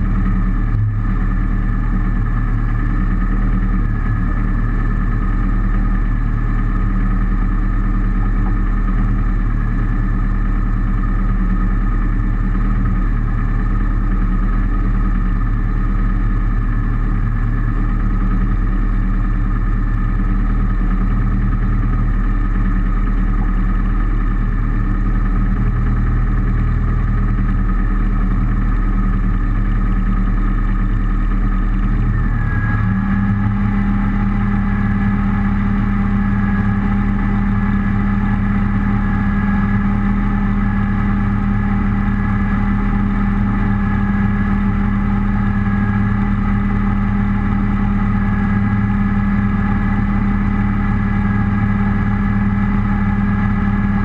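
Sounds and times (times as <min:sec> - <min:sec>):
rally car engine idling: 0:00.0 - 0:54.0.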